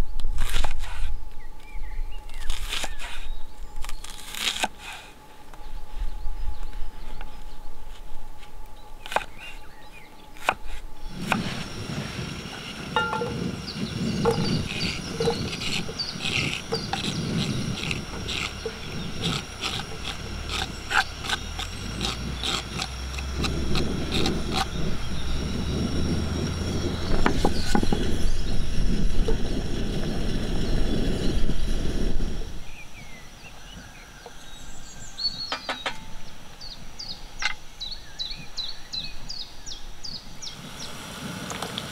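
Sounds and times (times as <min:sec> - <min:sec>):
birds chirping: 0:01.0 - 0:41.0
low rush: 0:10.8 - 0:33.2.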